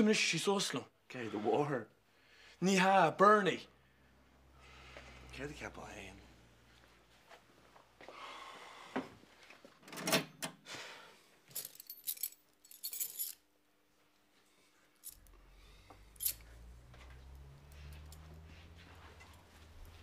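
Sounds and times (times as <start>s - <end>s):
small metal objects jingling: 11.5s - 13.4s, 16.1s - 16.7s.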